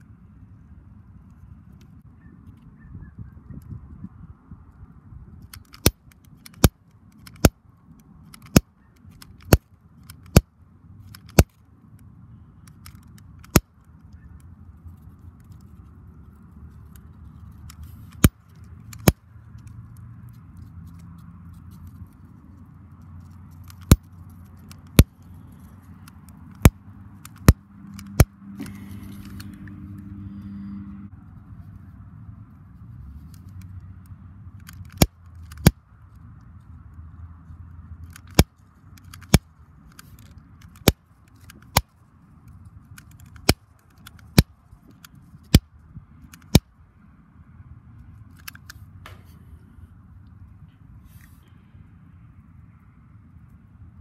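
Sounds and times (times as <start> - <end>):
wind rumble on microphone: 0.0 - 5.6.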